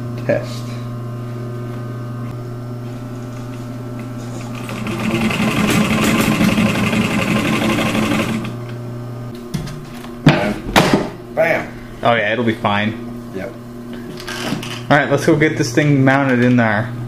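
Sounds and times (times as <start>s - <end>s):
sewing machine stitching: 4.5s - 8.6s.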